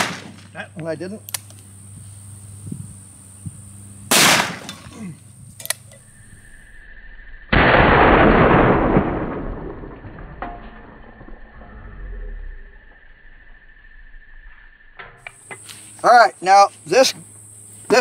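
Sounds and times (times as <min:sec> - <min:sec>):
revolver gunshots: 0:00.0 - 0:00.5, 0:04.1 - 0:04.9, 0:07.5 - 0:10.3.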